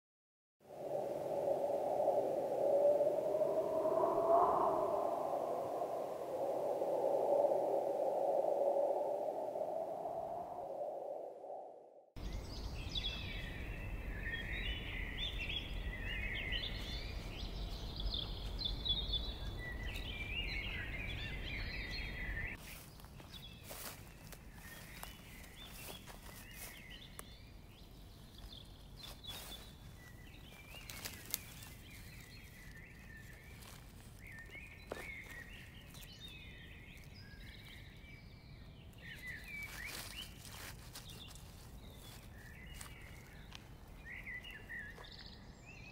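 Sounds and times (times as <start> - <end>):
songbirds chirping: 0.8 - 45.9
dry grass and leaves crackling: 22.5 - 45.5.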